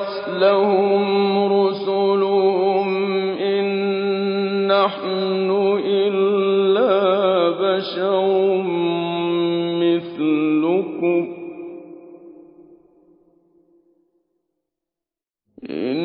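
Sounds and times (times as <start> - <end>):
man chanting melodically: 0.0 - 12.3, 15.6 - 16.0.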